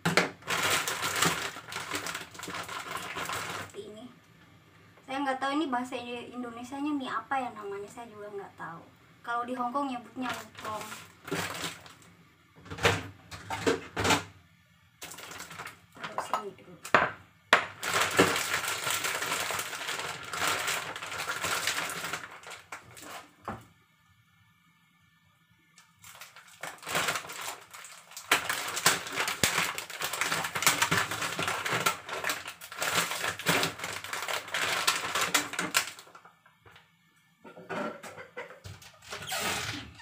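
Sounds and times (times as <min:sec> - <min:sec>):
plastic bag crinkling: 0:00.0 - 0:03.8, 0:10.2 - 0:12.1, 0:15.0 - 0:16.2, 0:17.6 - 0:23.4, 0:25.8 - 0:36.4.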